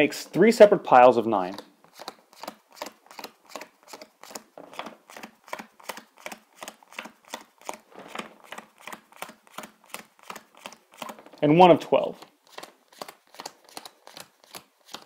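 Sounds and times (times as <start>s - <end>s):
playing cards landing on cloth: 7.8s - 8.9s.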